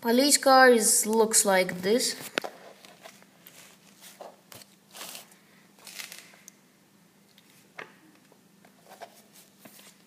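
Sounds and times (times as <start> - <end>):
paper pages rustling: 2.2 - 6.4, 8.8 - 10.0.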